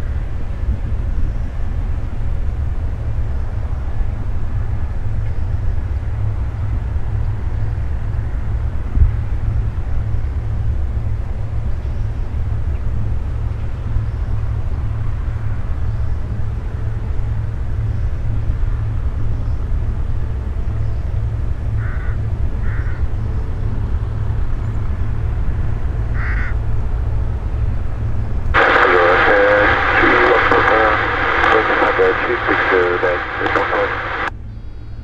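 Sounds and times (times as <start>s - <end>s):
crow cawing: 26.2s - 26.6s
voice over a radio: 28.6s - 34.3s.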